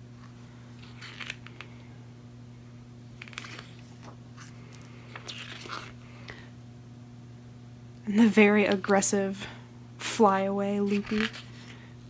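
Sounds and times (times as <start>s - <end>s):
steady low hum: 0.0s - 12.0s
book pages rustling: 0.8s - 1.7s, 3.2s - 6.0s, 10.9s - 11.5s.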